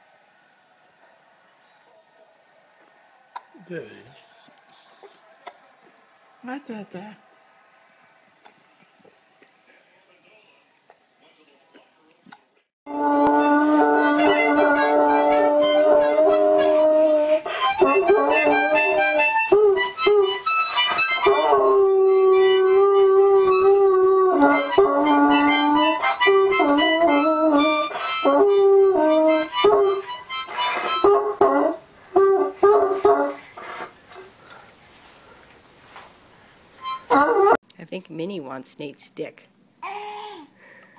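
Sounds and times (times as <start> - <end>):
dog howling: 12.9 - 30.1, 30.9 - 33.4, 37.0 - 37.6
harmonica chords: 12.9 - 33.8, 36.8 - 37.6.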